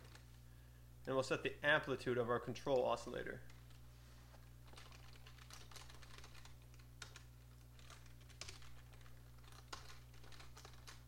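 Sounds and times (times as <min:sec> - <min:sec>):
typing on a keyboard: 0:04.7 - 0:11.0.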